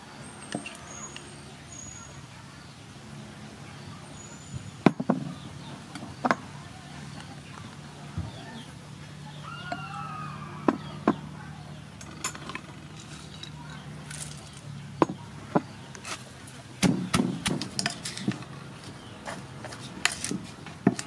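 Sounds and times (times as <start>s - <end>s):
pestle pounding in mortar: 16.8s - 17.8s.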